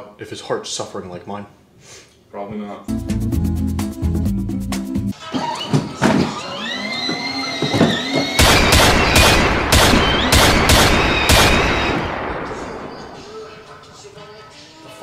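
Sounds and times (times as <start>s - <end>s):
siren wailing: 6.0s - 13.7s
pistol shots: 8.4s - 13.8s.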